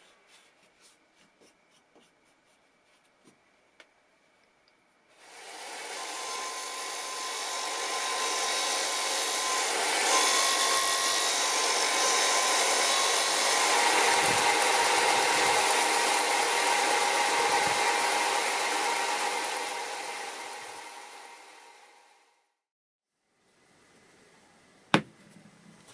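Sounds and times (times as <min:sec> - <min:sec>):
wood sanding hiss: 0:05.2 - 0:21.7
sander motor hum: 0:05.2 - 0:22.2.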